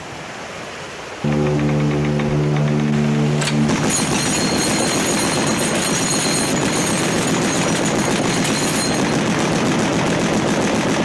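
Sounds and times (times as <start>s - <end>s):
machine gun firing rapid bursts: 3.8s - 11.0s.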